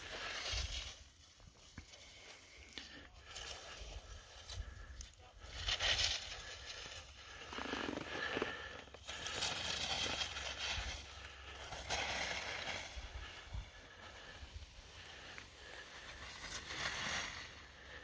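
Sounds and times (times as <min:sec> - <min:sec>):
skis scraping through snow: 0:00.0 - 0:02.5, 0:05.4 - 0:18.0.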